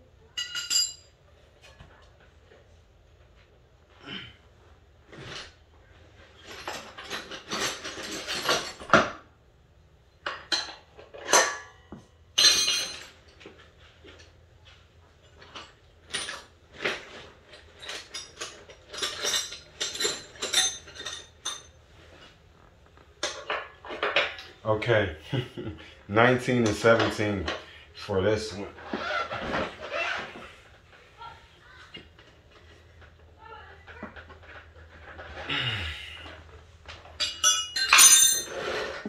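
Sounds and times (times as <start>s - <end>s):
metal wrenches clinking: 0.4s - 1.2s, 6.4s - 9.2s, 10.2s - 14.3s, 15.2s - 22.3s, 28.8s - 30.2s, 36.3s - 39.0s.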